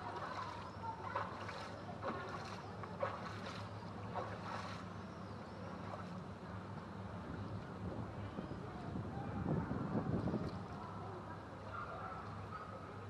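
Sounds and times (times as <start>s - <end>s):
water washing: 0.0s - 4.8s
boat engine humming: 0.0s - 6.0s.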